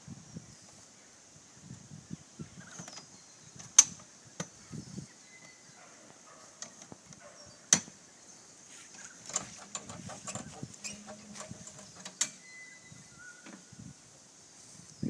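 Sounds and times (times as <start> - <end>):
sharp metallic clicks: 9.2 - 12.4
small clicks and rattles: 9.2 - 12.4.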